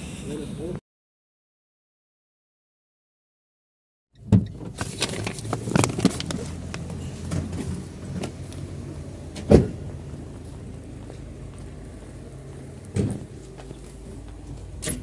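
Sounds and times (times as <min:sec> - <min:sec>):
paper bag crinkling: 0:04.7 - 0:07.3
car door shutting: 0:09.3 - 0:09.8, 0:12.9 - 0:13.4.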